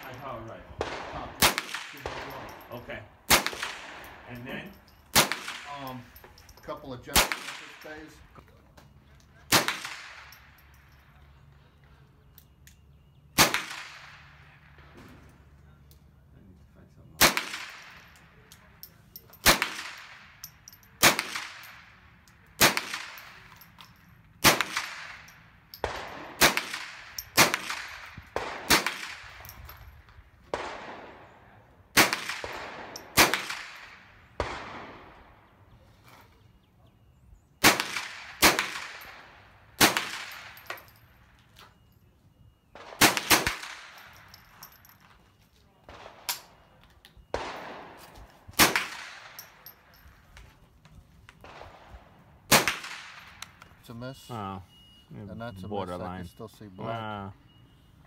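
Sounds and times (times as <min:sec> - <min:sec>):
rifle shots with echo: 0:00.0 - 0:06.4, 0:07.1 - 0:08.2, 0:09.5 - 0:11.0, 0:13.4 - 0:15.5, 0:17.2 - 0:23.6, 0:24.4 - 0:29.8, 0:30.4 - 0:35.6, 0:37.6 - 0:41.4, 0:42.7 - 0:45.0, 0:45.9 - 0:50.0, 0:51.4 - 0:53.6.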